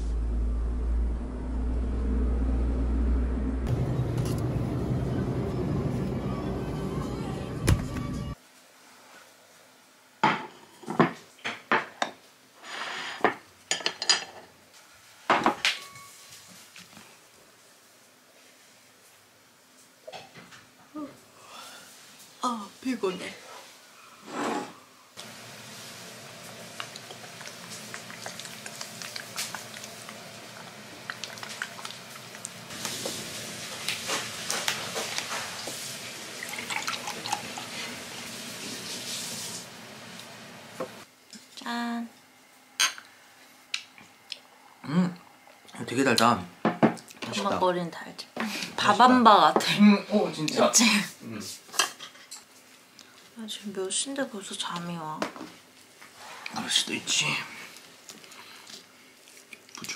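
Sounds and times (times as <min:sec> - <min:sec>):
tableware scraping: 0:12.6 - 0:14.5, 0:24.2 - 0:24.8
tableware clinking: 0:12.8 - 0:14.5
drink pouring into glass: 0:36.3 - 0:37.9.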